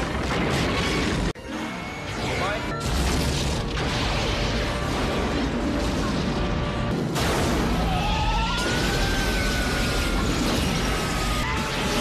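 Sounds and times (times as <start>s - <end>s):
fiery explosion: 2.9s - 12.0s
siren wailing: 7.8s - 12.0s.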